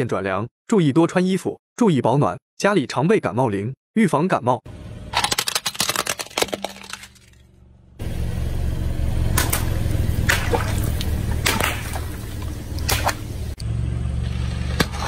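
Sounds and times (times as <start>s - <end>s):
plastic toy crushed clicking: 5.2s - 7.4s
car running low: 7.6s - 15.0s
water balloons bursting: 9.3s - 13.6s
water splashing: 9.4s - 13.6s.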